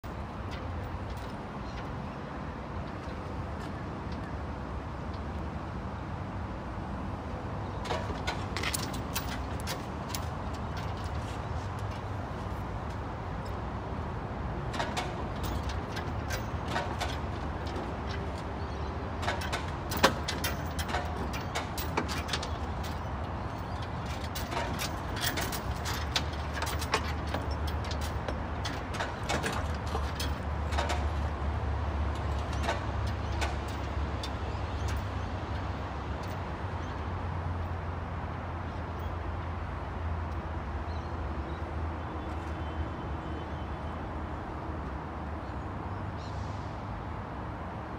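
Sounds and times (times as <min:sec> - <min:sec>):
lifting chains clinking: 0:14.7 - 0:18.5, 0:19.2 - 0:31.3.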